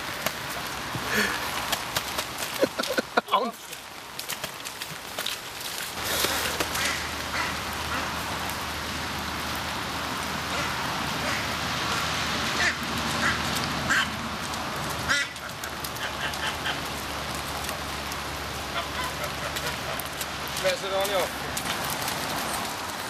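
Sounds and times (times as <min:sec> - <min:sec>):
waterfowl calls: 0:06.2 - 0:08.2, 0:10.5 - 0:11.5, 0:12.5 - 0:14.2, 0:15.0 - 0:17.0, 0:18.6 - 0:20.2.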